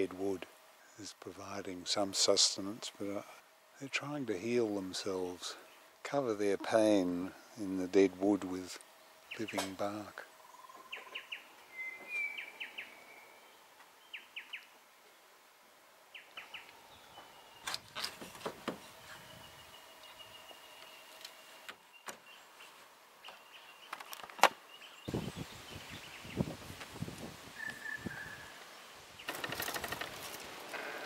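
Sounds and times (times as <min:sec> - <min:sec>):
small birds chirping: 0:08.8 - 0:15.3, 0:16.1 - 0:17.8, 0:18.8 - 0:26.7, 0:27.5 - 0:30.4.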